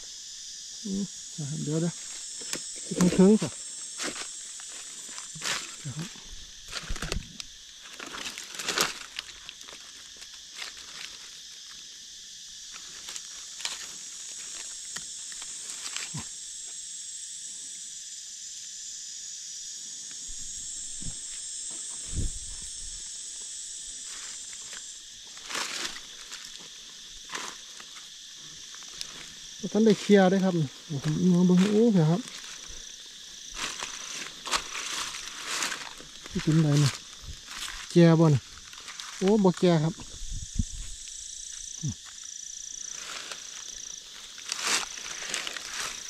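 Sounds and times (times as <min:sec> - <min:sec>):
insects droning: 0:00.0 - 0:46.0
dry leaves rustling and crackling: 0:06.7 - 0:11.8, 0:24.0 - 0:28.2, 0:28.8 - 0:39.6, 0:42.8 - 0:46.0.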